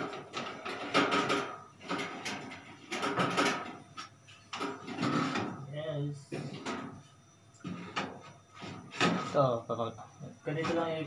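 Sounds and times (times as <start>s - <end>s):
wooden paddle scraping metal oven: 4.7s - 5.6s.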